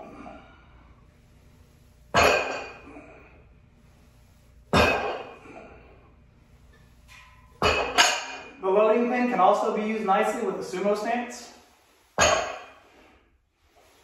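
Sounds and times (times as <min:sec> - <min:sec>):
weight plates clanking on floor: 0:07.1 - 0:08.5.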